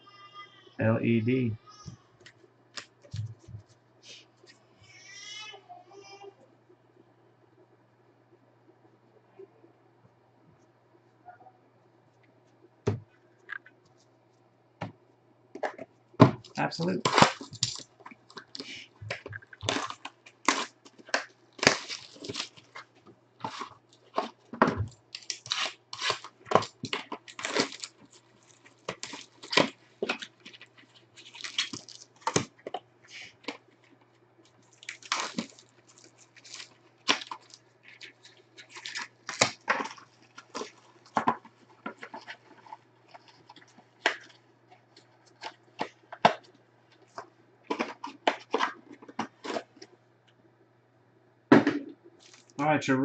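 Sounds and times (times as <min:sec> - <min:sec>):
faint low hum: 0:00.0 - 0:53.0
packs tearing and crinkling: 0:16.4 - 0:49.9, 0:52.2 - 0:52.6.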